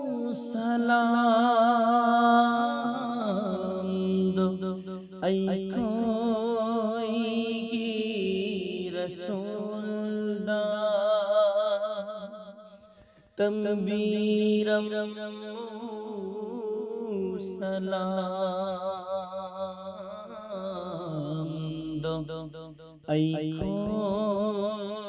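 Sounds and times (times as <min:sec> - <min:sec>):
man singing: 0:00.0 - 0:12.3, 0:13.4 - 0:22.5, 0:23.1 - 0:25.0.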